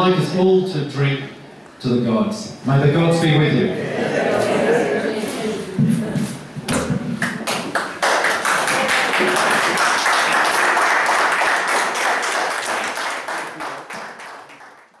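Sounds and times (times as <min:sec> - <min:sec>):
crowd applauding: 0:07.2 - 0:15.0.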